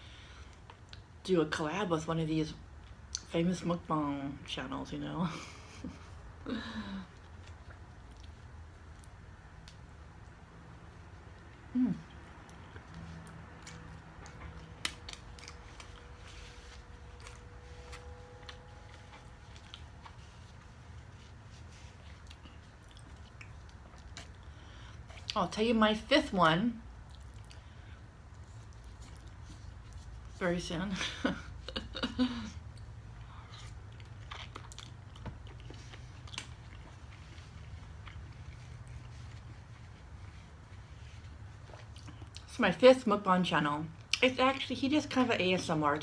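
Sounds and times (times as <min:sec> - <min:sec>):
mouth chewing food: 0:07.1 - 0:16.2, 0:16.9 - 0:25.4, 0:26.8 - 0:30.3, 0:32.7 - 0:40.6.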